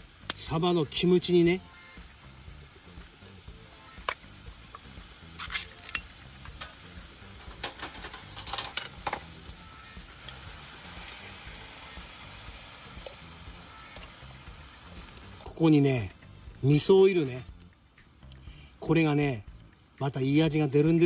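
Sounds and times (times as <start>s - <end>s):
stir-fry sizzling in a frying pan: 0.0s - 16.9s
metal clinks and scrapes: 7.6s - 9.2s.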